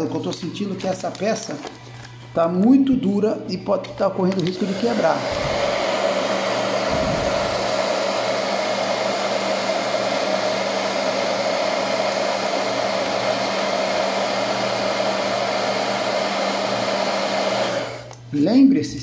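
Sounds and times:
hair dryer running: 4.0s - 18.3s.

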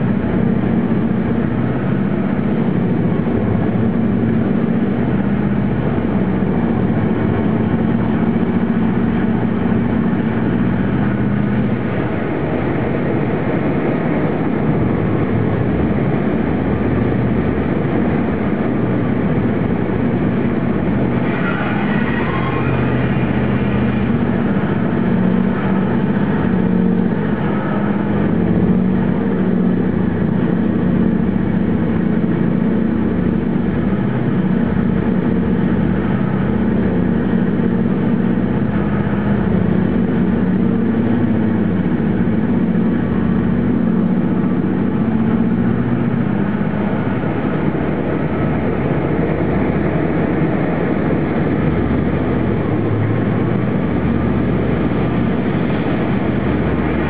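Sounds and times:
heavy diesel engines droning: 0.0s - 57.0s.

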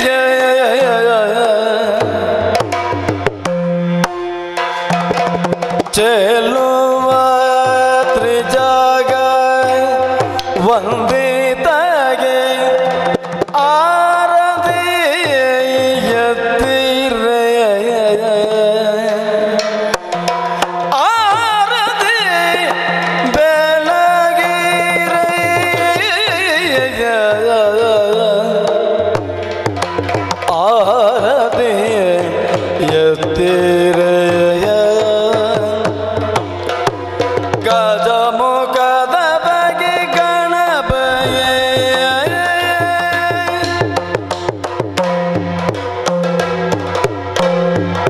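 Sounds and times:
drums beating: 0.0s - 48.0s
person singing ornamented melody: 20.8s - 29.2s.

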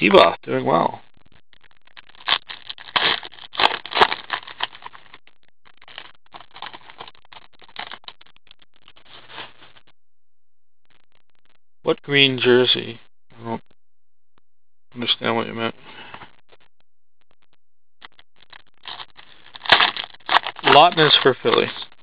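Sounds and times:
cards clicking and scraping: 2.2s - 5.0s, 5.8s - 7.1s, 18.9s - 21.7s.

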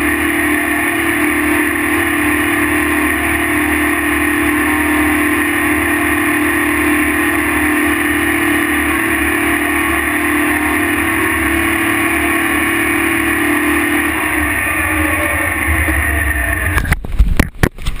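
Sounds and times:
tractor diesel engine running: 0.0s - 18.0s
camera knocking and bumping: 16.8s - 18.0s.

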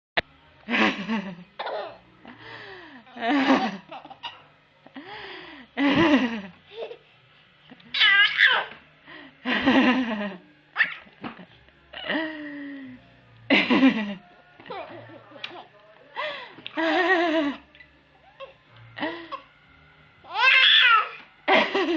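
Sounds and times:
baby laughing: 1.6s - 2.0s, 3.3s - 4.4s, 6.7s - 7.1s, 7.9s - 8.8s, 10.8s - 11.1s.

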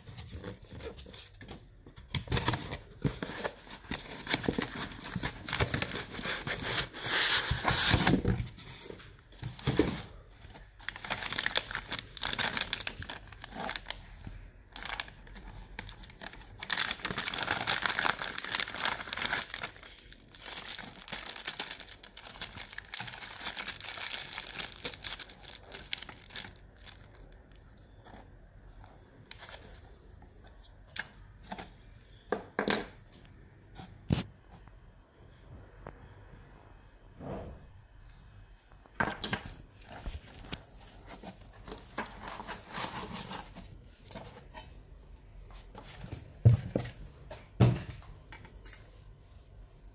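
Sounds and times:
plastic bag crinkling: 9.6s - 14.1s, 14.7s - 27.5s.

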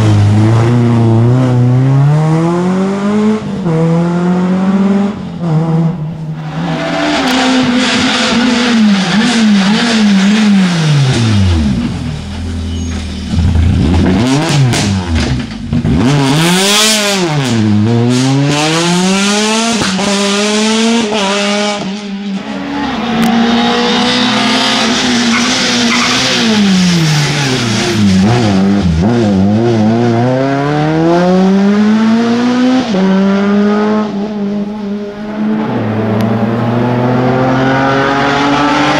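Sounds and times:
rally cars revving past: 0.0s - 12.1s, 13.3s - 38.9s.

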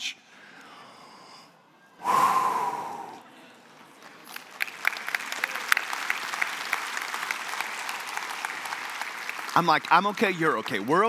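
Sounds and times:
audience applause: 4.0s - 11.0s.

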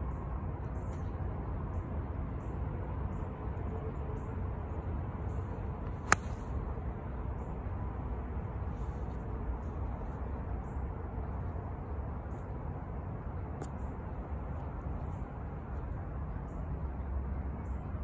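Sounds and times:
low outdoor rumble: 0.0s - 18.0s
golf club striking ball: 6.0s - 6.5s.

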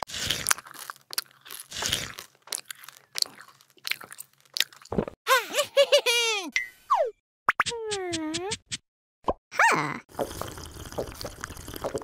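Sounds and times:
crisp biting crunches: 0.0s - 4.9s.

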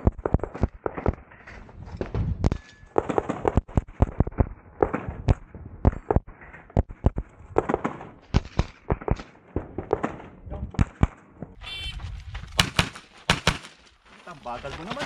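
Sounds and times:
rapid carbine gunfire: 7.6s - 11.2s, 12.6s - 13.7s.

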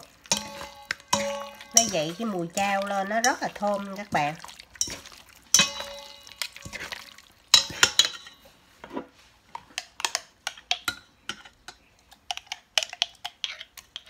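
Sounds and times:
utensils clattering in metal bowl: 0.0s - 8.5s
spoon clinking on bowl: 0.3s - 3.9s, 4.8s - 8.4s.

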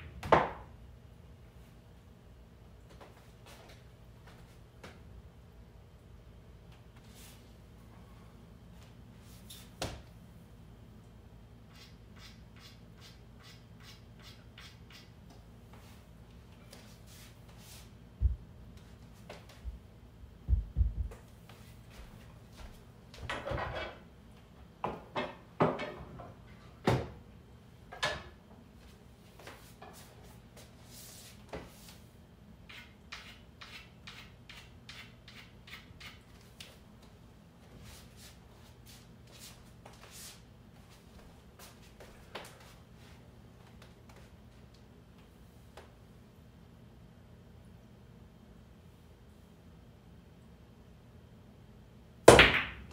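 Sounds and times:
low steady hum: 0.0s - 52.9s
dull thumps: 20.4s - 21.2s.

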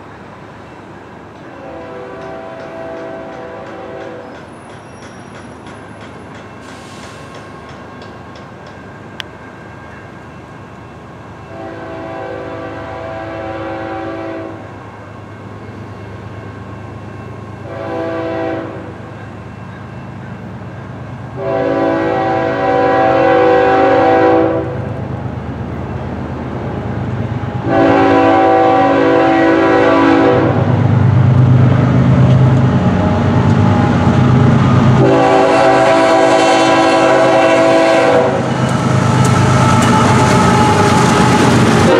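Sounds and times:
locomotive air horn blasts: 1.5s - 4.3s, 11.5s - 14.7s, 17.6s - 19.0s, 21.4s - 25.0s, 27.6s - 30.7s, 35.0s - 38.6s, 40.0s - 41.9s.

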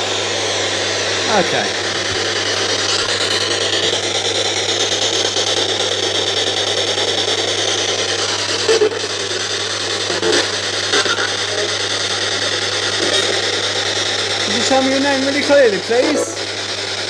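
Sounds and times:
radio static hiss: 0.0s - 16.8s
steady low hum: 0.0s - 17.0s
brief radio snippets: 14.4s - 16.5s.

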